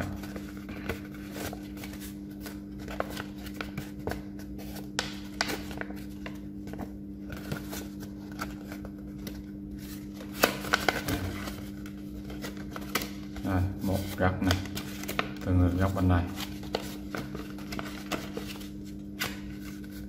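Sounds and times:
paper rustling and crinkling: 0:00.0 - 0:20.0
steady low hum: 0:00.0 - 0:20.0.

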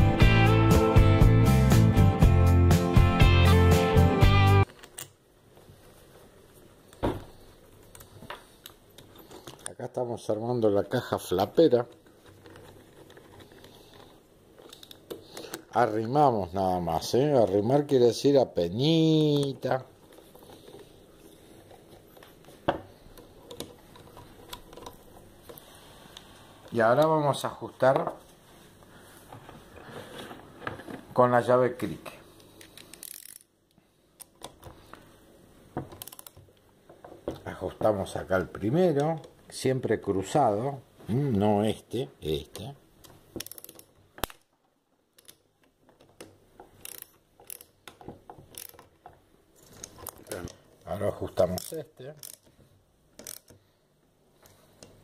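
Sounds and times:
ratchet wrench clicking: 0:32.8 - 0:33.5, 0:36.0 - 0:36.4, 0:43.4 - 0:43.9, 0:46.8 - 0:47.7, 0:48.5 - 0:48.8, 0:51.6 - 0:52.5, 0:53.2 - 0:53.6
screwdriver clicks on metal parts: 0:43.4 - 0:44.4, 0:46.0 - 0:48.9, 0:51.5 - 0:52.5, 0:53.2 - 0:53.6.

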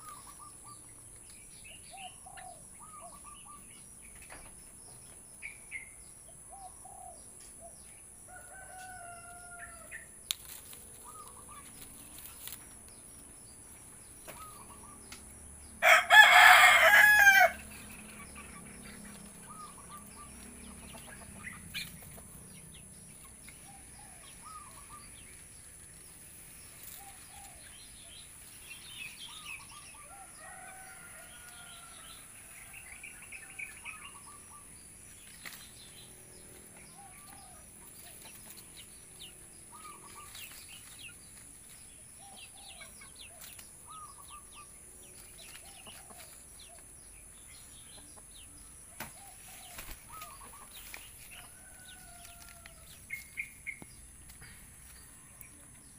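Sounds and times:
birds chirping: 0:00.0 - 0:55.9.

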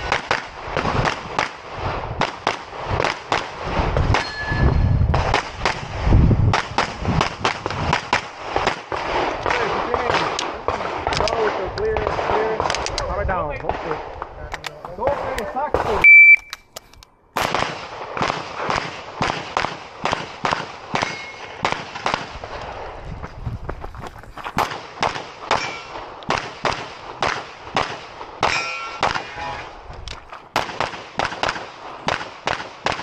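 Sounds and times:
steel targets ringing: 0:04.2 - 0:04.9, 0:21.0 - 0:21.6, 0:25.5 - 0:26.0, 0:28.4 - 0:29.8
pistol shots: 0:17.4 - 0:22.6, 0:24.6 - 0:29.3, 0:30.3 - 0:33.0.

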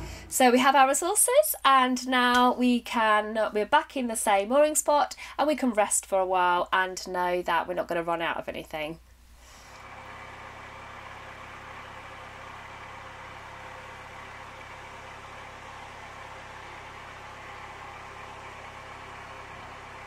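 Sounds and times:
diesel engine humming: 0:00.0 - 0:00.9, 0:09.7 - 0:20.0.

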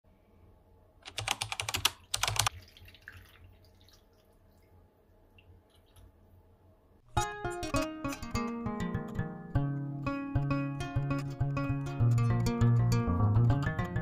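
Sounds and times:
broth splashing into bowl: 0:02.5 - 0:06.1
faint liquid trickle: 0:02.5 - 0:06.3.

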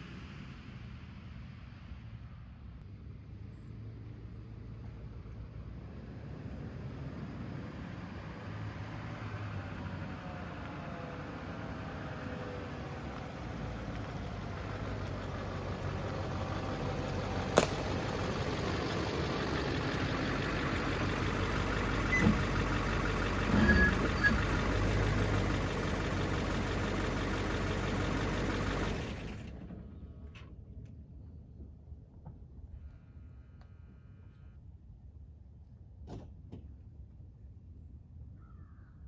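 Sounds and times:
diesel truck engine reversing: 0:06.2 - 0:30.1.

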